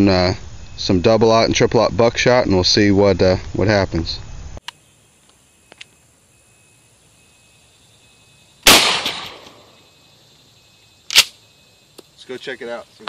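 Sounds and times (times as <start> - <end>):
shotgun blast: 8.6 - 9.6.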